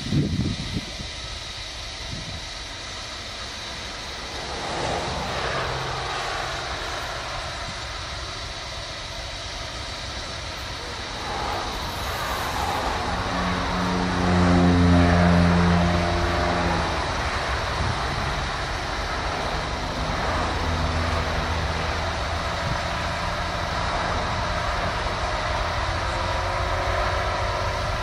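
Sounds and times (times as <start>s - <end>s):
diesel locomotive running: 0.0s - 28.0s
droning horn tone: 3.7s - 8.6s, 10.8s - 28.0s.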